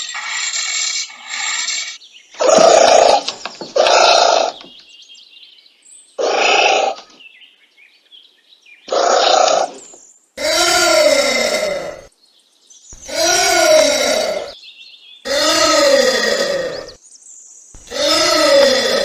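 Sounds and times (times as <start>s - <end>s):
anteater calling: 13.0s - 14.6s, 15.3s - 17.0s.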